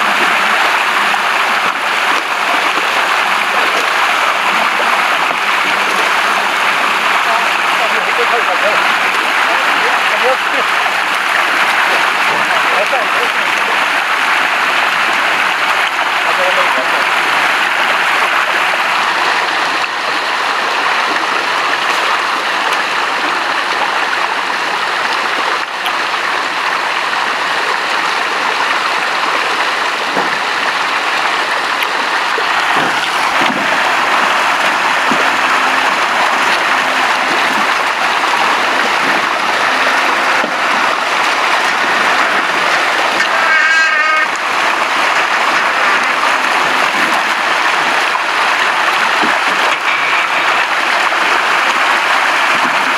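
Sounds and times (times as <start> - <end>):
fish splashing in water: 0.0 - 52.9
brief warbling tone: 34.7 - 44.4, 49.7 - 50.7.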